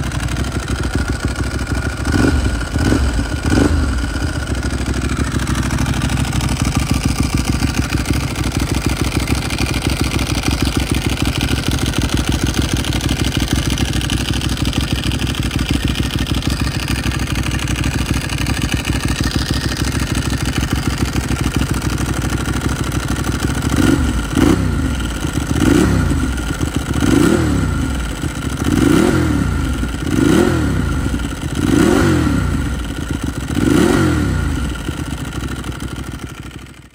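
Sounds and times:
motorcycle engine idling: 0.0s - 36.9s
engine revving: 2.0s - 4.4s, 23.7s - 25.0s, 25.6s - 28.0s, 28.6s - 32.7s, 33.4s - 34.7s.

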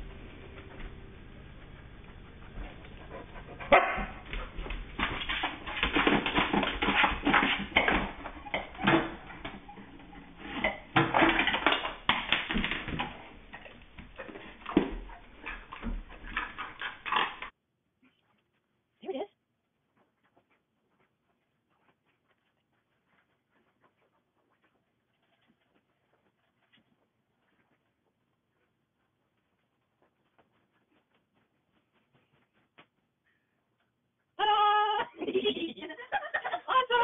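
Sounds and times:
large dog barking: 3.6s - 4.2s.

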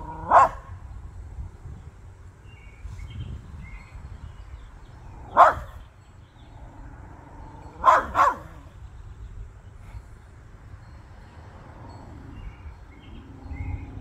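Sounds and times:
small dog barking: 0.0s - 0.7s, 5.3s - 5.8s, 7.7s - 8.7s.

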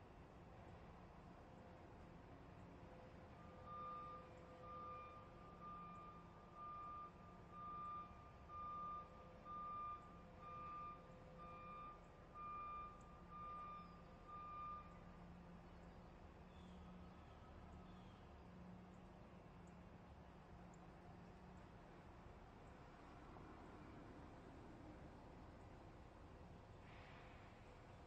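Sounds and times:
truck warning beeper: 3.7s - 15.0s.

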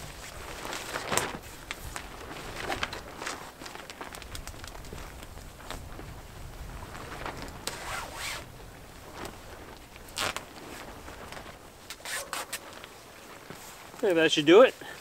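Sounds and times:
wind rumble on microphone: 0.0s - 11.9s
tarp rustling and scraping: 0.0s - 15.0s.

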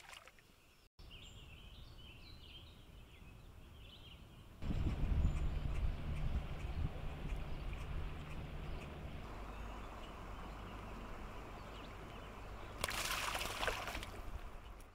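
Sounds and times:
fish splashing into water: 0.0s - 0.4s, 12.8s - 14.3s.

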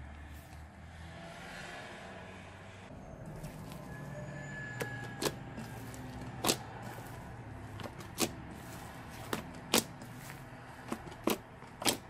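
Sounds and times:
hands squishing thick slime: 4.8s - 12.0s.

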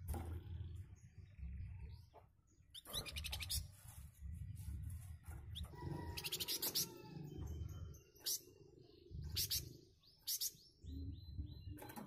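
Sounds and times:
songbird harsh chattering song: 8.2s - 11.7s.

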